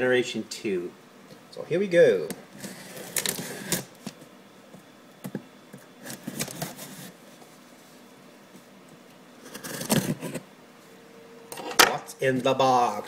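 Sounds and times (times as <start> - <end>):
knife slitting tape and cardboard: 9.4 - 10.4.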